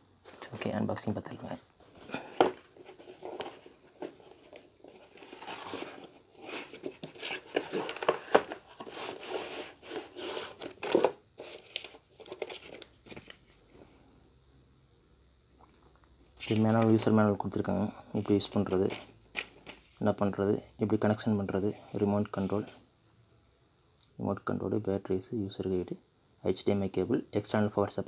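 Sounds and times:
cardboard rustling and scraping: 0:01.8 - 0:13.7, 0:18.3 - 0:20.0.

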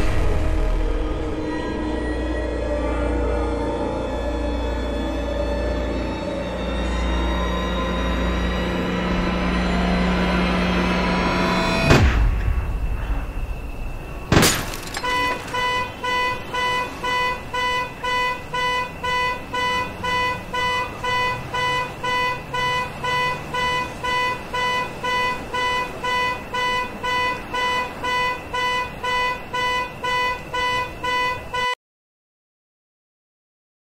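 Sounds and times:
car alarm horn honking: 0:14.5 - 0:31.8.

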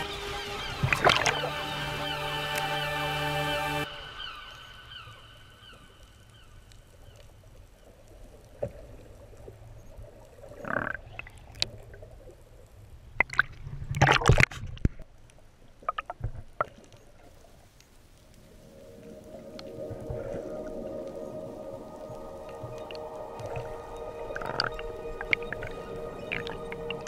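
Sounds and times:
water sloshing and splashing: 0:00.0 - 0:03.0, 0:18.4 - 0:27.0.

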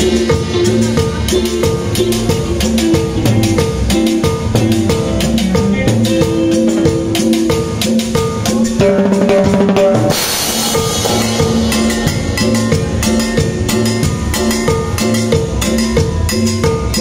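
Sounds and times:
drums played with sticks: 0:00.0 - 0:17.0
latin band music: 0:00.0 - 0:17.0
cymbal crash: 0:07.6 - 0:15.6.

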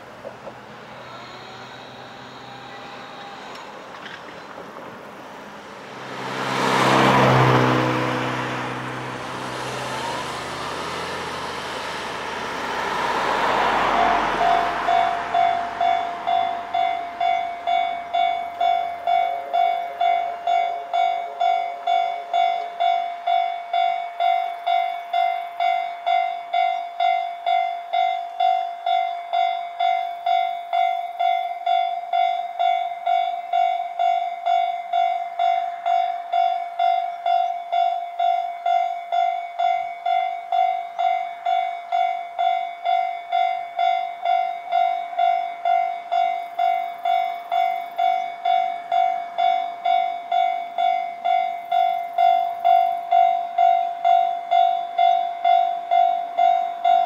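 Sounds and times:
level crossing warning bell: 0:00.8 - 0:04.2, 0:06.0 - 0:57.0.

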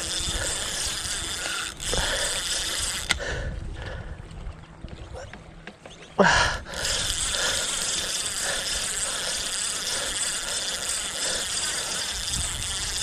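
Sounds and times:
fishing reel drag buzzing: 0:00.0 - 0:03.5, 0:06.5 - 0:13.0.

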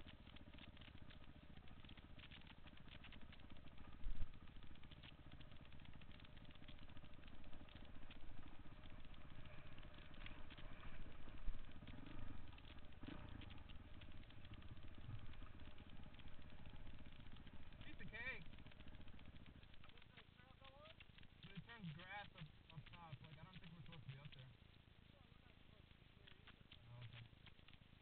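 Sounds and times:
bike rattling over bumps: 0:00.0 - 0:24.4
dirt bike engine running: 0:00.0 - 0:28.0.

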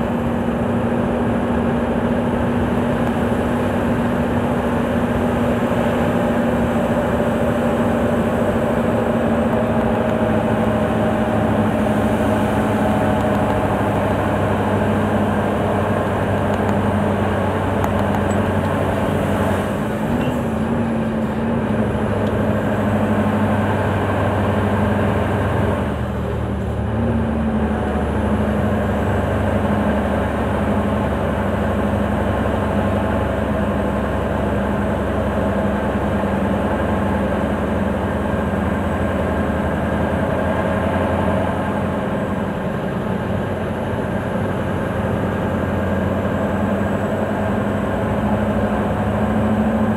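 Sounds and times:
truck diesel engine from cab: 0:00.0 - 0:49.9.

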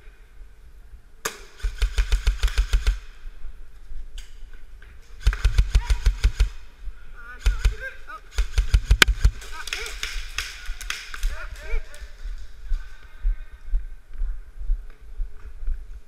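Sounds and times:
airsoft guns firing bursts: 0:01.6 - 0:03.1, 0:05.2 - 0:06.7, 0:07.4 - 0:11.9.

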